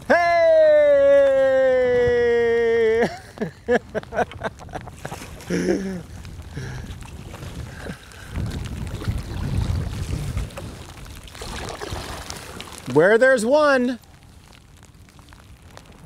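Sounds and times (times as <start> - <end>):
man laughing: 0.0 - 6.2
wind rumble on microphone: 0.0 - 16.0.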